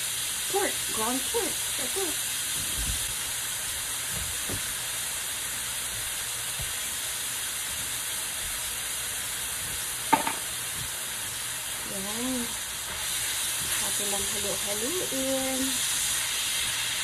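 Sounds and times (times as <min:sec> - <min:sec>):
onions sizzling in a wok: 0:00.0 - 0:17.0
sharp knock: 0:10.1 - 0:10.4.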